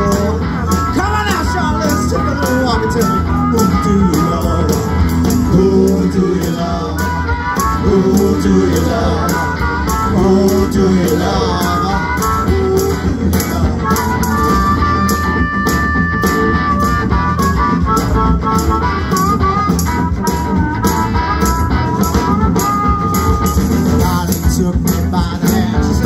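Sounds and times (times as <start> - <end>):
person singing: 0.0 - 14.3
drum beat: 0.0 - 26.0
electric guitar: 0.0 - 26.0
live blues-rock band: 0.0 - 26.0.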